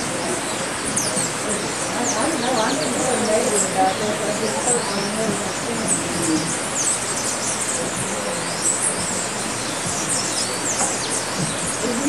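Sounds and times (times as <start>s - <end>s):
small birds chirping: 0.0s - 12.0s
steady background hiss: 0.0s - 12.0s.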